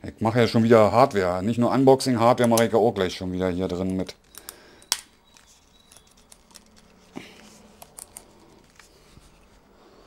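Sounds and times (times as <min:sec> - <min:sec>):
headphone parts clicking: 0:03.9 - 0:08.9.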